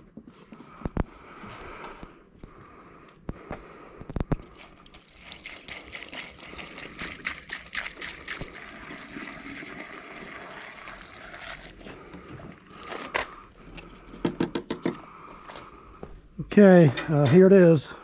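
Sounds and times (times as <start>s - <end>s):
gasoline pouring through funnel: 4.4s - 13.1s
knocks: 14.2s - 15.0s.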